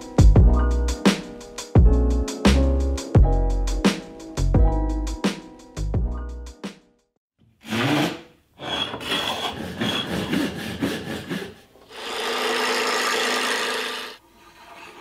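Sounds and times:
rasping hand tool strokes: 0:07.6 - 0:15.0
brace and bit boring wood: 0:11.8 - 0:15.0.

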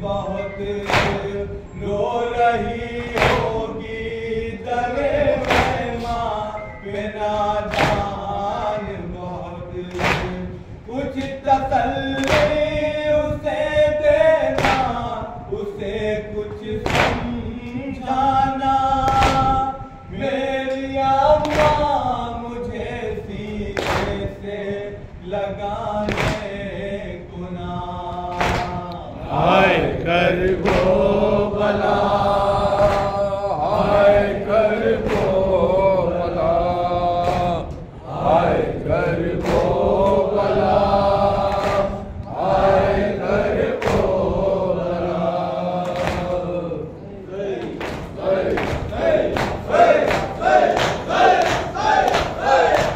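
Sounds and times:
men chanting a lament: 0:00.0 - 0:52.9
hands slapping chests: 0:00.8 - 0:01.3, 0:03.2 - 0:03.5, 0:05.4 - 0:05.9, 0:07.7 - 0:08.1, 0:09.9 - 0:10.4, 0:12.2 - 0:12.6, 0:14.6 - 0:14.9, 0:16.9 - 0:17.2, 0:19.1 - 0:19.6, 0:21.4 - 0:21.8, 0:23.8 - 0:24.2, 0:26.1 - 0:26.5, 0:28.4 - 0:28.8, 0:30.6 - 0:31.0, 0:37.2 - 0:37.6, 0:41.5 - 0:41.9, 0:45.8 - 0:46.4, 0:47.6 - 0:52.9.

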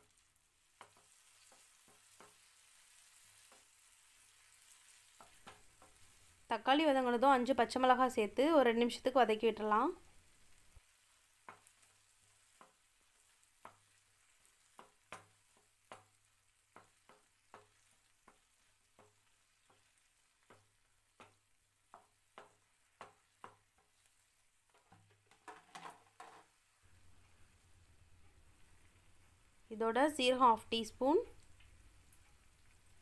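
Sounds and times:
faint sizzle: 0:00.0 - 0:33.0
spatula scraping frying pan: 0:00.6 - 0:06.5, 0:10.3 - 0:26.4.

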